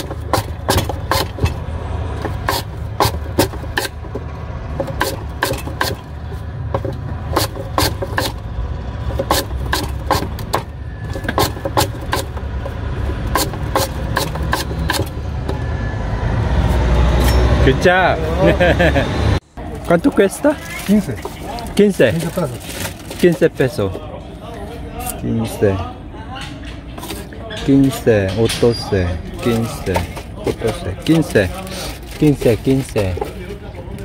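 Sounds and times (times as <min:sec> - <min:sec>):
blade chopping sugarcane: 0:00.0 - 0:08.4, 0:09.0 - 0:15.2.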